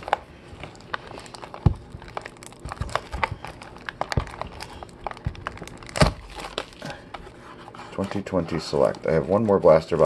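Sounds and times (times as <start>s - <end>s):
plastic wrapping crinkling: 0.0s - 10.0s.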